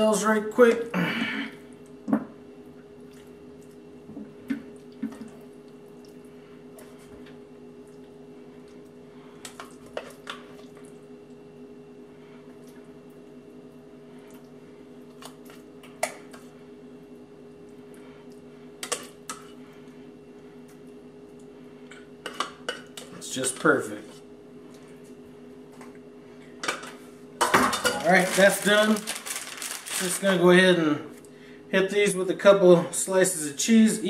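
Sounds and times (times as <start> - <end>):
steady background hum: 0.0 - 34.0.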